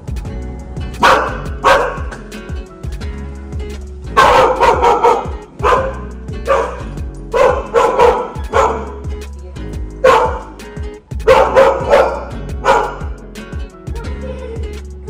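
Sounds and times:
background music: 0.0s - 15.0s
dog barking: 1.0s - 2.2s, 4.2s - 9.0s, 10.0s - 10.6s, 11.2s - 13.2s.

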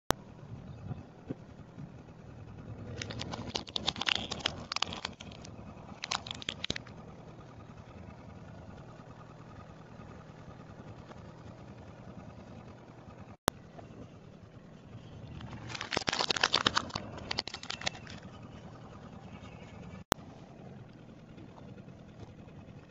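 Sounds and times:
car rumbling: 0.3s - 22.9s
plastic toys cracking under tyre: 2.9s - 6.8s, 15.4s - 18.2s.

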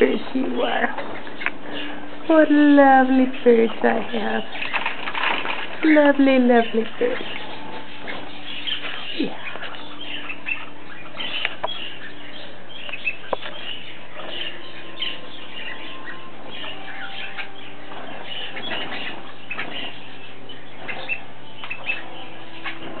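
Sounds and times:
cage birds chirping: 0.0s - 23.0s
bird wings fluttering: 4.6s - 5.9s.

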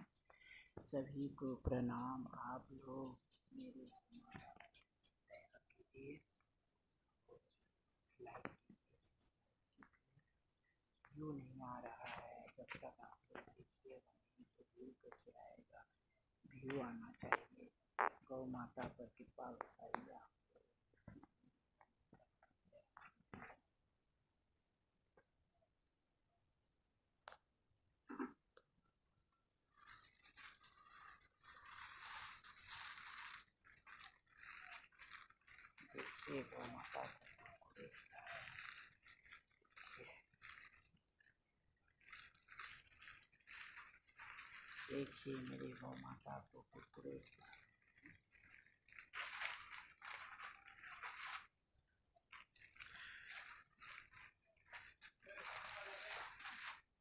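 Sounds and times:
plastic snack packet crinkling: 29.7s - 51.6s, 52.2s - 57.0s.

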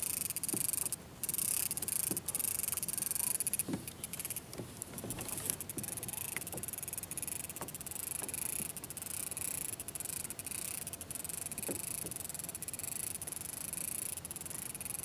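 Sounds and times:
fishing reel clicks: 0.0s - 15.0s
water lapping against hull: 3.5s - 9.5s.

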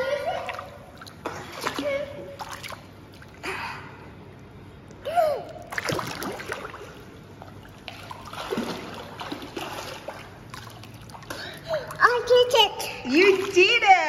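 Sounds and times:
pool water splashing: 0.0s - 3.6s, 5.5s - 14.0s.

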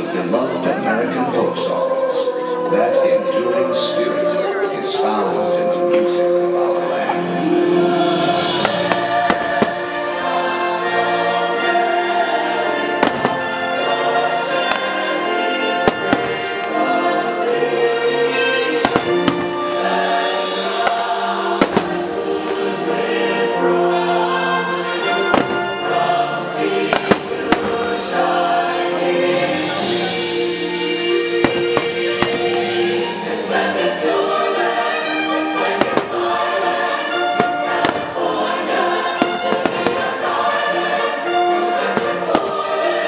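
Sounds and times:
choral music soundtrack: 0.0s - 43.0s
fireworks bangs: 8.4s - 10.1s, 13.0s - 16.8s, 18.8s - 19.8s, 20.5s - 22.7s, 25.0s - 25.8s, 26.7s - 28.2s, 31.4s - 33.1s, 35.6s - 40.4s, 41.8s - 42.9s.

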